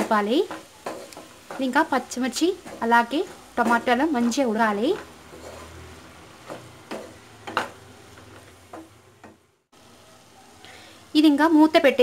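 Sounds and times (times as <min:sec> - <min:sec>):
spatula scraping pan: 0:00.0 - 0:09.4
onions sizzling in oil: 0:00.0 - 0:12.0.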